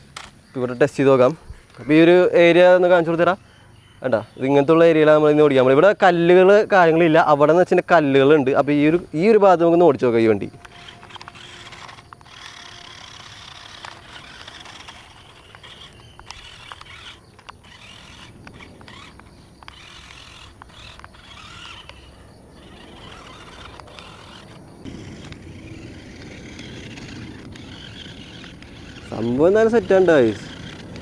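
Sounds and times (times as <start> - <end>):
tyres scraping on dirt: 8.0 - 31.0
small electric motor whirring: 9.9 - 31.0.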